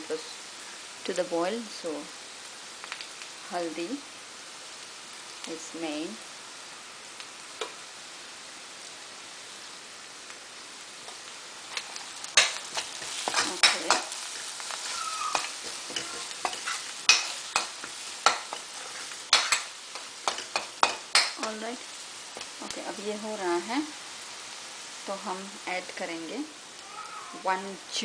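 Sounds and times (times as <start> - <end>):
onions sizzling in a wok: 0.0 - 28.0
metal spoon scraping pan: 11.7 - 21.6.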